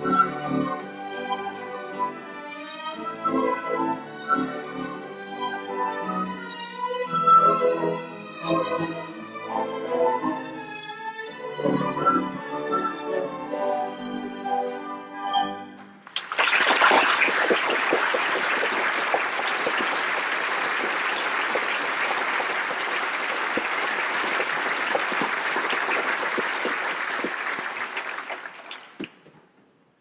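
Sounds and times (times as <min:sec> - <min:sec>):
audience applauding: 0:16.0 - 0:29.3.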